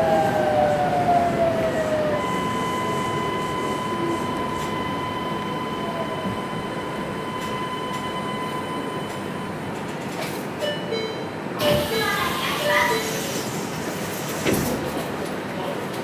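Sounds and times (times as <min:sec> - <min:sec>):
train inverter whine: 0:00.0 - 0:11.5
train rolling rumble: 0:00.0 - 0:16.0.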